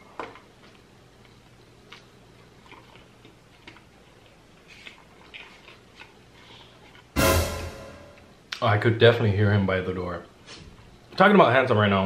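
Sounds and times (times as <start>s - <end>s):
chewing with wet mouth clicks: 0.1s - 7.1s.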